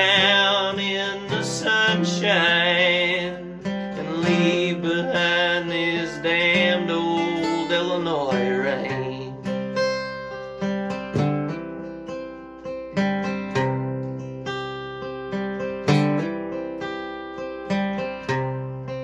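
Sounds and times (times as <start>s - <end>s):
acoustic guitar chords: 0.0s - 19.0s.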